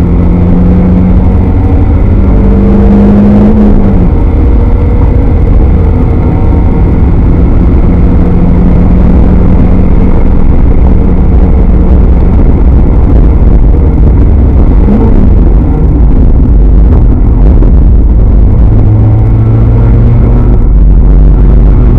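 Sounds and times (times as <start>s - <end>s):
car engine running hard: 0.0s - 21.9s.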